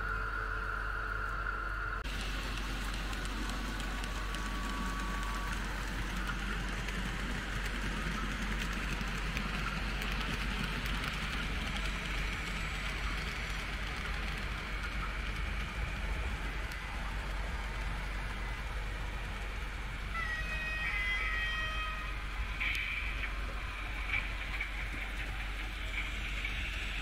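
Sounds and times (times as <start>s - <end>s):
low hum: 0.0s - 20.1s
model train wheels rattling: 2.0s - 18.6s.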